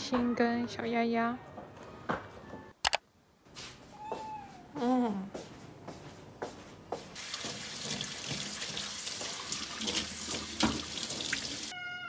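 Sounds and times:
faucet running into steel sink: 7.2 - 11.7.

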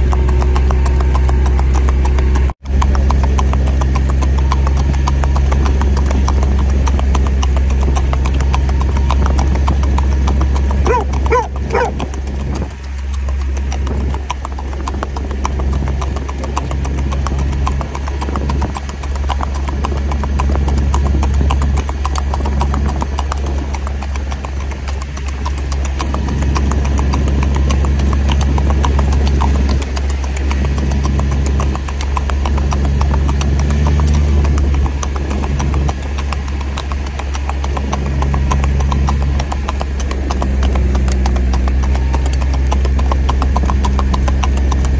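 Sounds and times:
horse hooves clip-clopping on asphalt: 0.0 - 44.9
low engine hum: 0.0 - 44.9.

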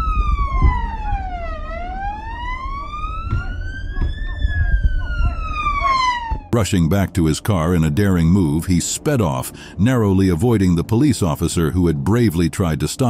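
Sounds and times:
siren wailing: 0.0 - 6.6.

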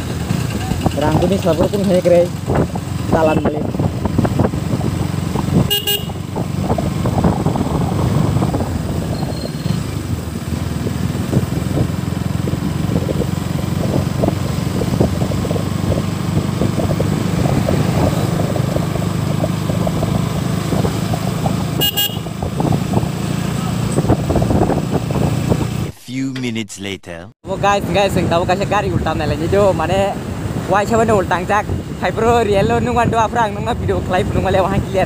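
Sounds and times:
motorcycle engine running: 0.0 - 25.9
wind and road noise: 0.0 - 26.6, 27.5 - 35.0
short horn toot: 5.7 - 6.2, 21.8 - 22.2.

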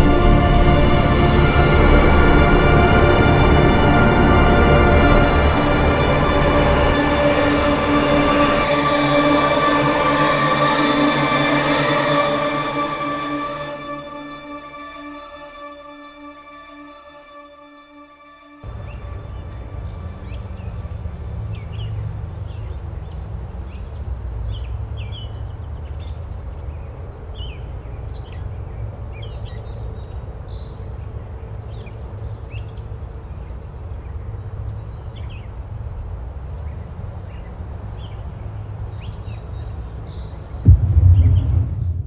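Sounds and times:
loud low boom: 40.6 - 42.0
steady low rumble: 40.6 - 42.0.

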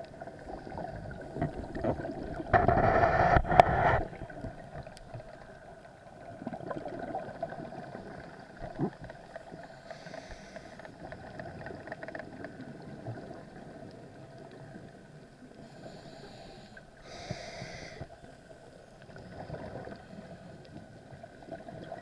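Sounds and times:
muffled underwater rumble: 0.0 - 22.0
crackling clicks: 1.3 - 5.6, 8.6 - 12.8.

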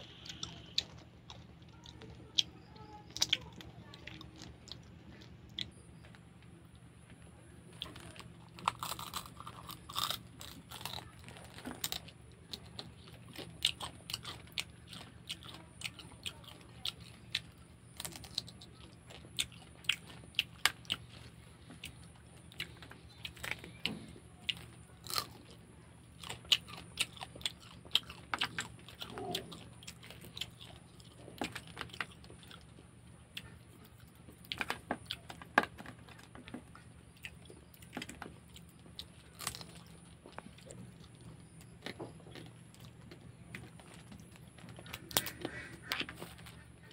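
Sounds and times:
chewing: 0.0 - 46.9
crab shell cracking: 43.9 - 46.6.

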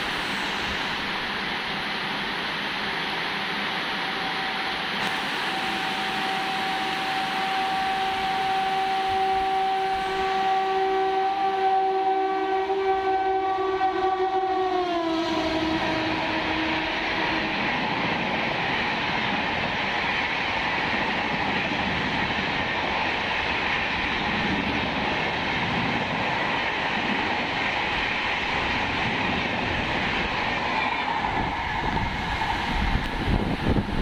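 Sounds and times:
train wheels rushing on rails: 0.0 - 34.0.

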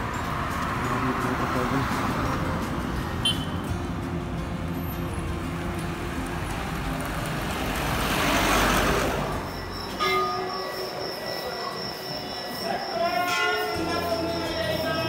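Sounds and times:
vehicle passing: 0.0 - 10.0
steady high tones: 9.3 - 15.0.

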